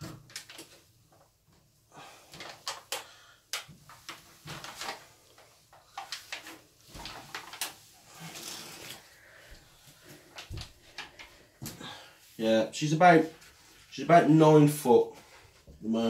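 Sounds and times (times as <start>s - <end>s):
snake sliding over paper: 6.1s - 11.5s.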